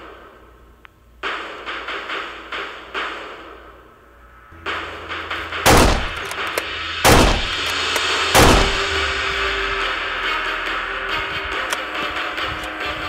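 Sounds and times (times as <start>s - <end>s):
background music: 1.2s - 13.0s
gunshot bangs: 5.6s - 7.7s, 8.4s - 9.0s
toy blaster firing: 5.7s - 9.0s.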